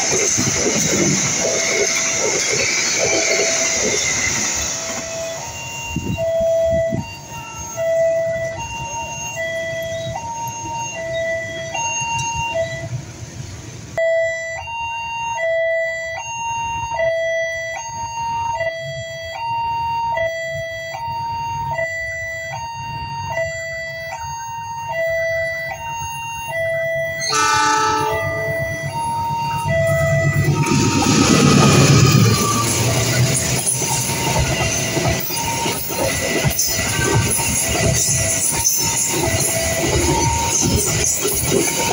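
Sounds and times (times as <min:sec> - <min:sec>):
two-tone warning alarm: 0:00.0 - 0:13.0, 0:14.0 - 0:41.9
locomotive horn: 0:14.3 - 0:41.9.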